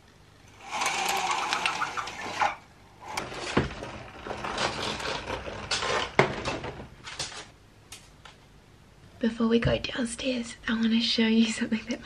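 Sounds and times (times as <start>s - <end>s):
window blinds rattling: 0.5s - 7.5s.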